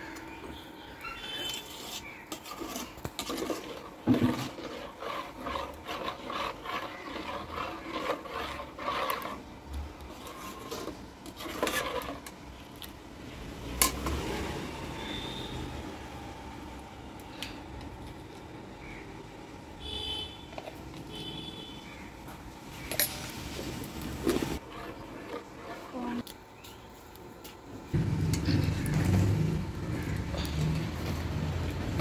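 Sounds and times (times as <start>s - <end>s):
ladle scraping metal pot: 1.2s - 12.9s, 24.2s - 26.3s.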